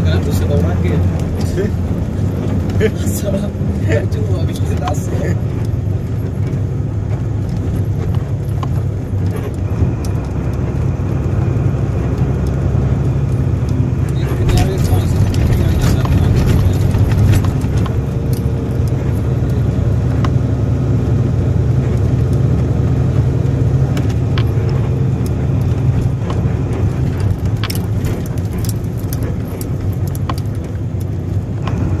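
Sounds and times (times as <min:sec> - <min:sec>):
vehicle engine and road drone: 0:00.0 - 0:32.0
small clicks and rattles: 0:11.9 - 0:20.4, 0:23.4 - 0:31.9.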